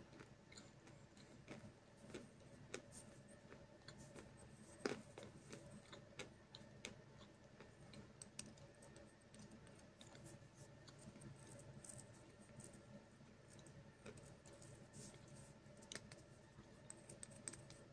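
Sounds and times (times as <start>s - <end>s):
chalk being chewed: 0.2s - 12.9s.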